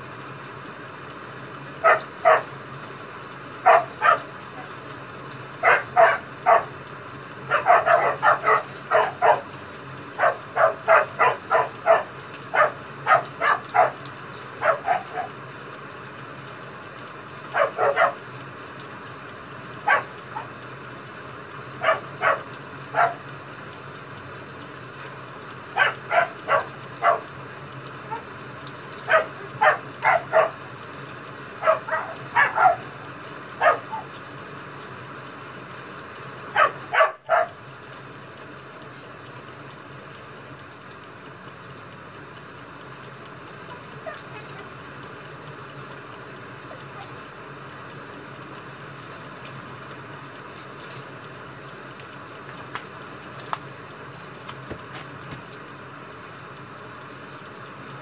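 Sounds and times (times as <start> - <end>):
rain hiss: 0.0 - 58.0
dog barking: 1.8 - 2.6, 3.6 - 4.8, 5.6 - 6.8, 7.5 - 9.6, 10.2 - 14.0, 14.6 - 15.4, 17.5 - 18.3, 19.8 - 20.6, 21.8 - 23.2, 25.7 - 27.4, 28.0 - 28.4, 29.0 - 30.7, 31.6 - 33.0, 33.6 - 34.2, 36.5 - 37.6, 43.7 - 44.8.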